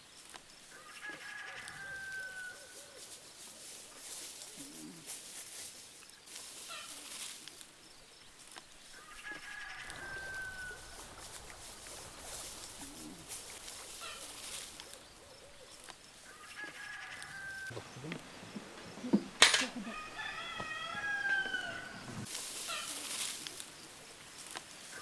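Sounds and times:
soft bird calls: 0.0s - 25.0s
steady outdoor hiss: 0.0s - 25.0s
rooster crowing: 0.7s - 3.0s, 9.0s - 11.2s, 16.3s - 17.7s, 19.6s - 22.3s.

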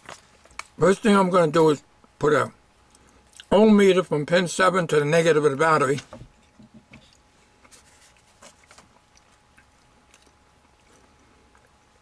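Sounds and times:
faint steady hum: 0.0s - 12.0s.

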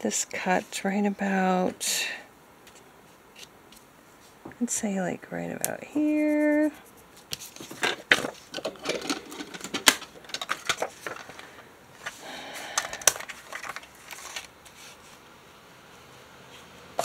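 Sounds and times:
paper rustling: 6.3s - 12.2s, 12.9s - 15.2s.

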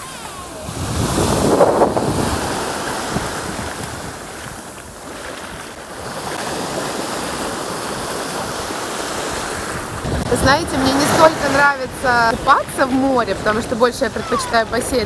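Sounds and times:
waves washing on pebble beach: 0.0s - 15.0s.

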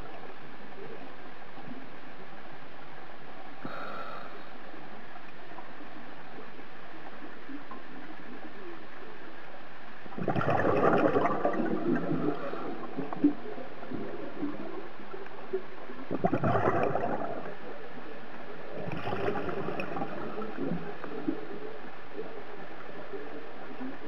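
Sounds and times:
steady low hiss: 0.0s - 24.0s
underwater gurgling bubbles: 10.0s - 24.0s.

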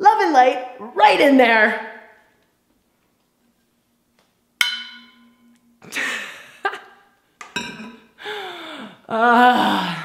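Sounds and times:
metal bottle clinking on stone: 4.6s - 5.6s.

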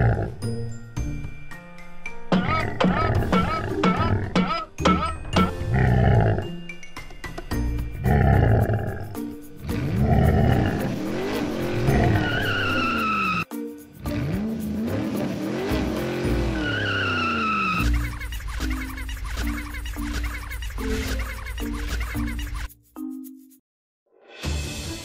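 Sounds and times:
background music: 0.0s - 25.0s
cartoon engine revving: 9.6s - 13.4s, 14.0s - 22.7s
tyre squeal: 11.9s - 13.5s, 16.4s - 20.0s.

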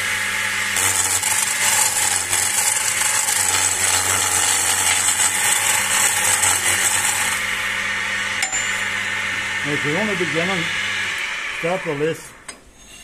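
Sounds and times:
lathe low hum: 0.0s - 13.0s
chisel cutting with high hiss: 0.6s - 7.4s, 9.7s - 13.0s.

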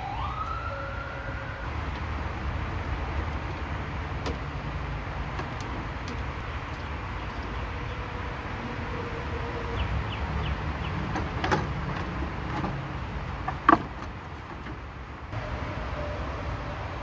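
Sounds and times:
plastic fan shroud scraping: 11.0s - 15.0s.

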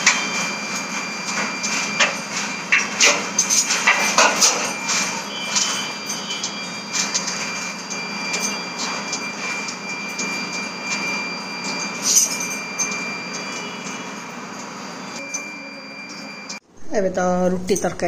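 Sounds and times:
gas burner hissing: 0.0s - 12.0s
thin high tone: 0.0s - 16.6s.

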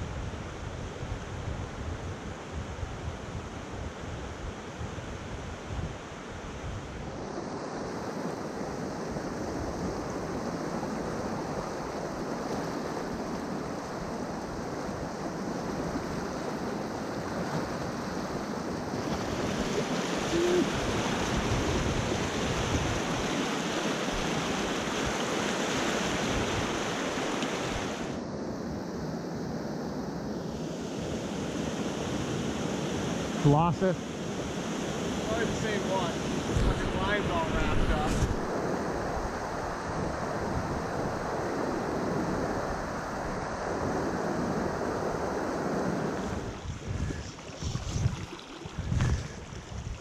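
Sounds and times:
rushing river water: 7.0s - 28.2s, 30.7s - 50.0s
wind buffeting microphone: 18.6s - 25.3s, 36.2s - 50.0s.

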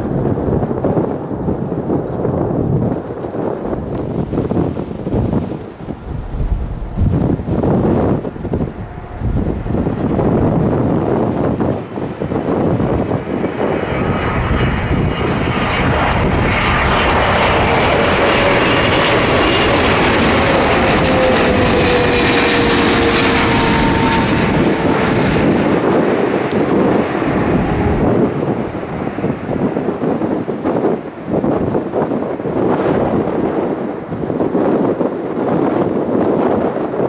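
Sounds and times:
jet engines roaring past: 0.0s - 37.0s
jet whine falling in pitch: 3.7s - 30.3s.

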